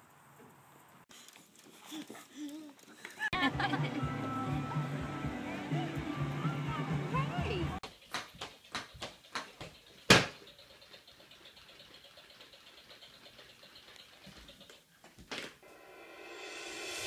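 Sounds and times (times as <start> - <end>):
faint hiss: 15.6 - 17.0.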